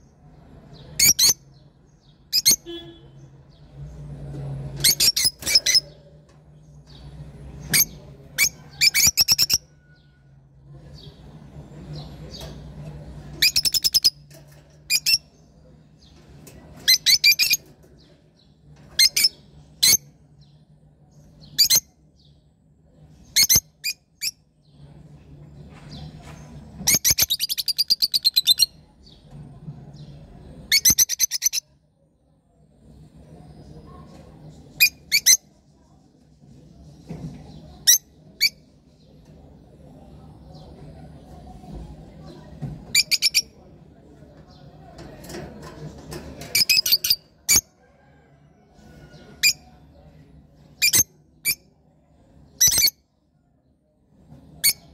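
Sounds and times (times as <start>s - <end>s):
lovebirds shrieking chirps: 7.7s - 10.2s.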